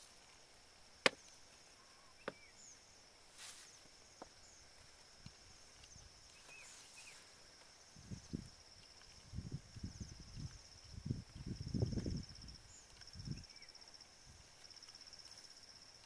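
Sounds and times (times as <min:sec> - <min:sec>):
rustle of grass: 0:00.0 - 0:16.0
faint chirps: 0:01.1 - 0:09.4
clicks and knocks in soil: 0:03.3 - 0:16.0.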